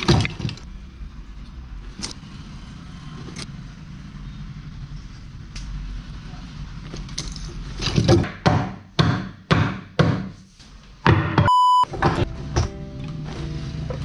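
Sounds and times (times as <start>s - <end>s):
short electronic beep: 11.5s - 11.9s.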